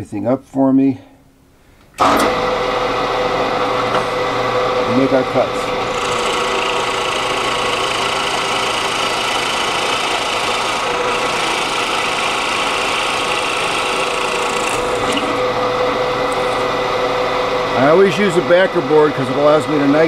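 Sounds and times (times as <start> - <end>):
drill press boring into wood: 5.6 - 15.5, 16.2 - 16.8.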